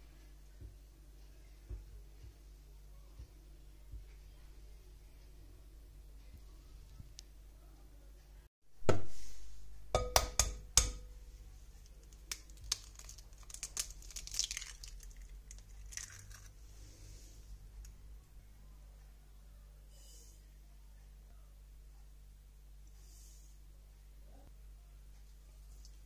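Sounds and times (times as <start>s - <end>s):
egg knocking on glass bowl: 10.0s - 11.1s
eggshell crackling: 11.8s - 16.6s.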